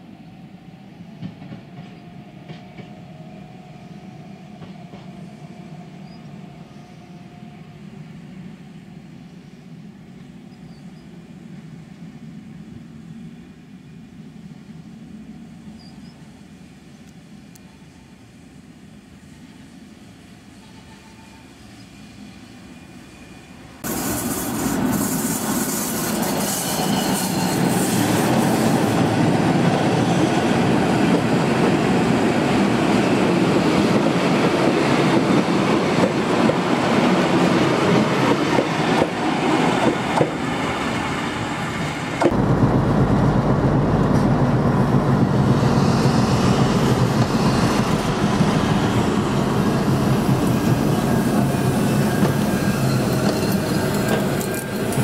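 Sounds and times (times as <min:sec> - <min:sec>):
train wheels clattering on rails: 0:01.2 - 0:03.0, 0:04.6 - 0:05.3, 0:23.9 - 0:40.9, 0:42.2 - 0:55.0.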